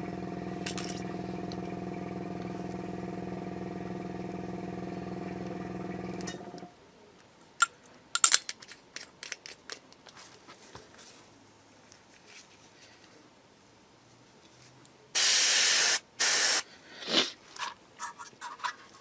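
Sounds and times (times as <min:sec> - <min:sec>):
airbrush compressor humming: 0:00.0 - 0:06.7.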